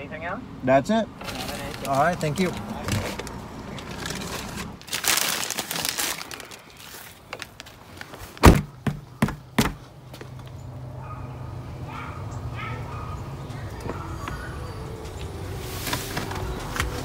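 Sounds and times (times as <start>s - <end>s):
crinkling rustle: 1.2s - 8.4s
sharp knocks: 8.4s - 9.8s.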